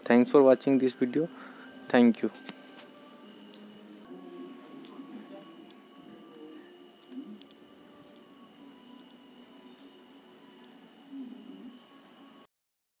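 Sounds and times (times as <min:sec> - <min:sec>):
crickets chirping: 0:00.0 - 0:12.5.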